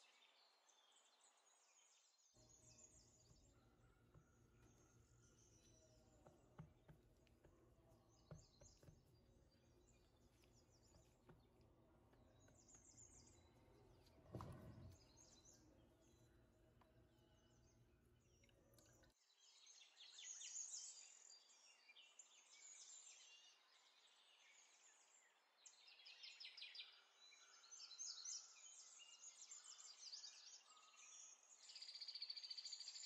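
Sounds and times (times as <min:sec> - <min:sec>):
soft thud: 0:14.1 - 0:15.2.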